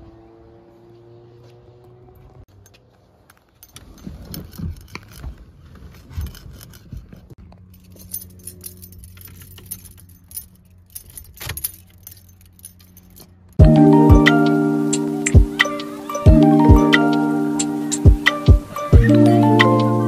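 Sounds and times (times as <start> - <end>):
keys jangling: 7.6 - 13.5.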